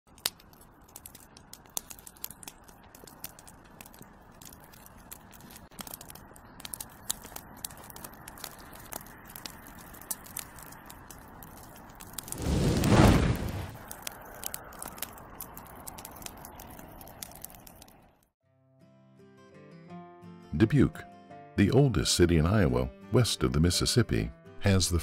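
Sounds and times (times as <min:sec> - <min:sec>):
fire crackling and popping: 0:00.1 - 0:18.3.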